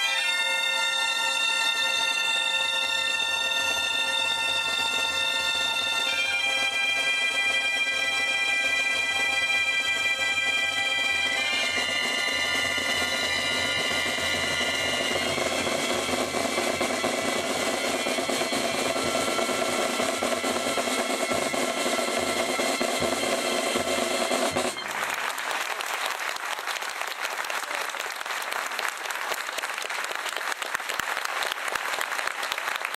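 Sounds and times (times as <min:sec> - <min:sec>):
bagpipe band playing: 0:00.0 - 0:25.2
snare and bass drums: 0:04.6 - 0:25.0
crowd applauding: 0:24.7 - 0:33.0.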